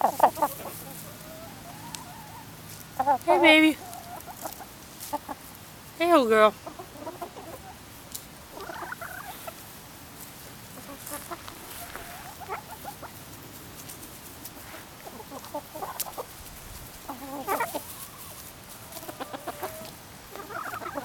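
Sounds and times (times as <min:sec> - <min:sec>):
hens clucking: 0:00.0 - 0:21.0.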